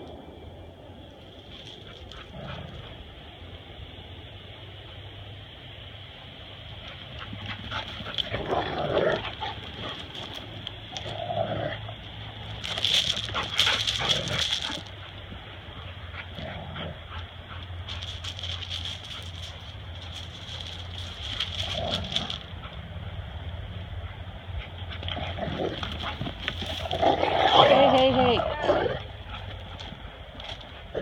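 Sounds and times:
dogs scuffling and rustling: 0:06.8 - 0:11.2, 0:12.0 - 0:23.0, 0:24.6 - 0:28.5
dogs growling and whimpering: 0:07.5 - 0:10.4, 0:24.7 - 0:30.0.

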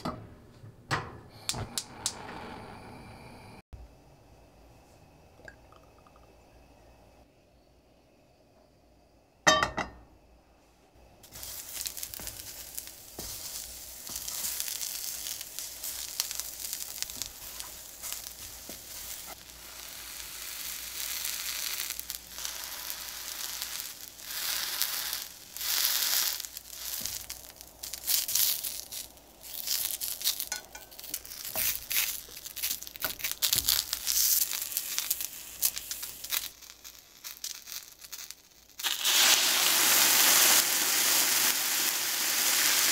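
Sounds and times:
eggplant frying in oil: 0:11.2 - 0:42.9.

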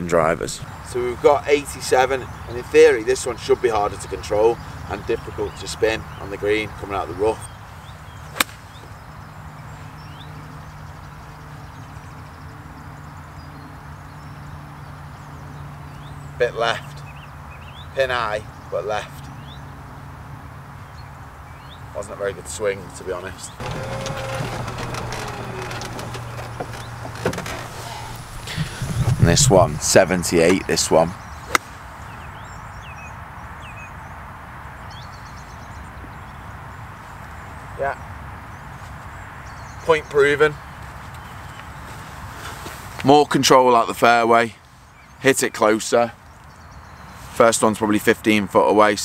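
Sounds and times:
birds chirping: 0:00.0 - 0:48.9
open-air noise: 0:00.0 - 0:49.0
golf club striking ball: 0:08.3 - 0:08.8, 0:31.5 - 0:31.8.

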